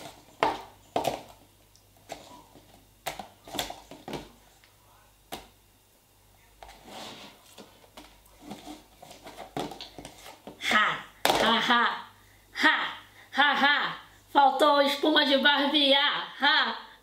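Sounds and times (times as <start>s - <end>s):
slime scraping and rustling: 6.6s - 10.5s.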